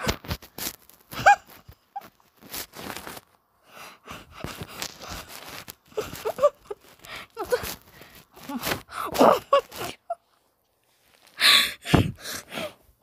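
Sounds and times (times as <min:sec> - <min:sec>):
person laughing wheezily: 0:01.1 - 0:02.2, 0:04.1 - 0:10.3.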